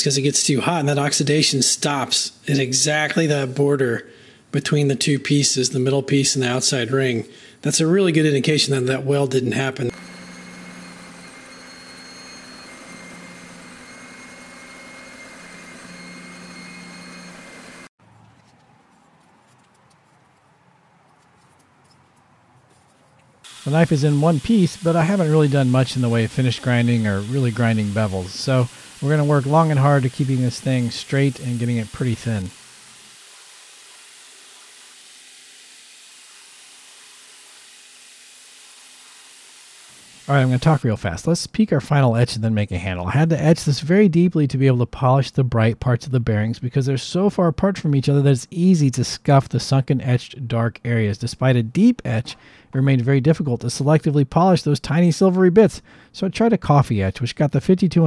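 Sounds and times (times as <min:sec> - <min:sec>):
belt grinder grinding knife blade: 0:09.9 - 0:17.9, 0:23.5 - 0:40.8
machine motor humming: 0:09.9 - 0:17.9, 0:23.5 - 0:40.8.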